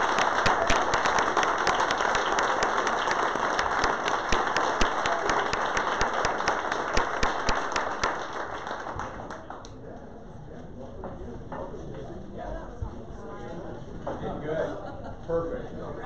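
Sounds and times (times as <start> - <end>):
crowd applauding: 0.0 - 9.7.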